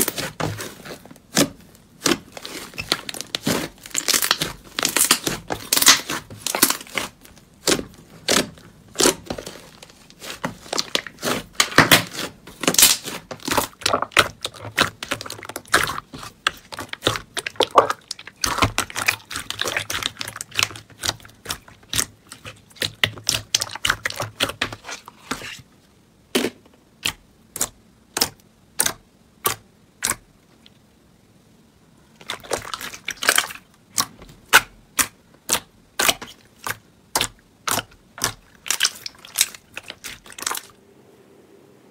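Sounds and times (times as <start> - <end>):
slime crackling and popping: 0.0 - 25.0, 26.4 - 30.3, 32.2 - 40.7.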